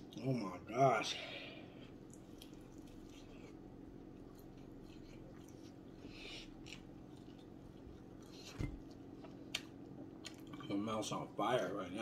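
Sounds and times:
faint steady hum: 0.0 - 12.0
faint chewing: 1.8 - 10.8.

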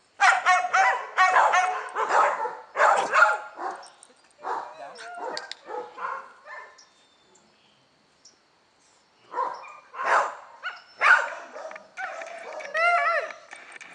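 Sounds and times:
dog barking: 0.2 - 6.8, 9.3 - 12.8.

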